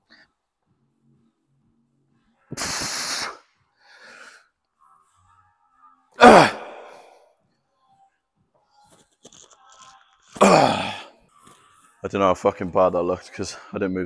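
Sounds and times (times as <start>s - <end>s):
man grunting: 6.2s - 7.1s.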